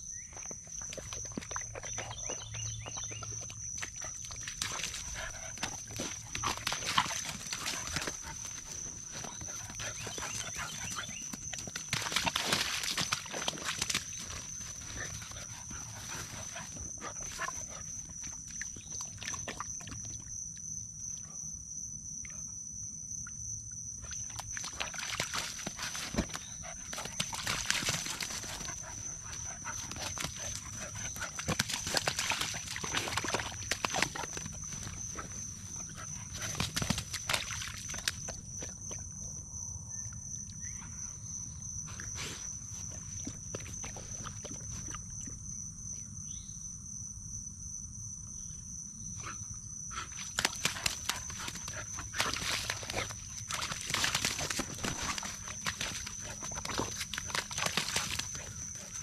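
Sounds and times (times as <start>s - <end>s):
puppy splashing in puddle: 0.3s - 20.2s, 24.0s - 39.0s, 42.8s - 45.1s, 50.0s - 59.0s.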